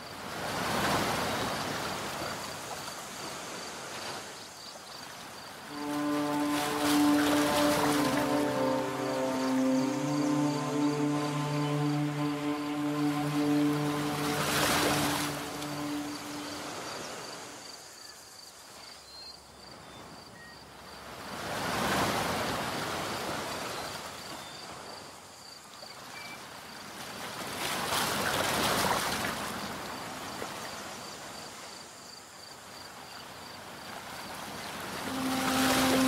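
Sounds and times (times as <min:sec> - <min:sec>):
waves washing on shore: 0:05.7 - 0:17.6, 0:34.6 - 0:36.0.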